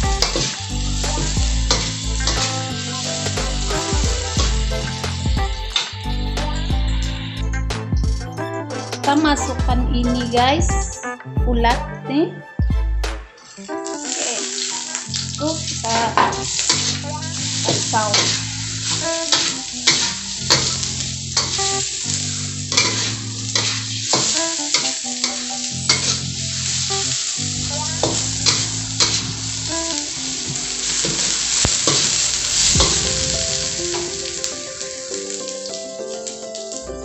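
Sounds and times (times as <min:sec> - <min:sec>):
food sizzling in hot oil: 0:00.0 - 0:07.5, 0:13.4 - 0:37.0
metal spatula scraping wok: 0:01.7 - 0:02.8, 0:13.4 - 0:27.1, 0:28.0 - 0:29.7.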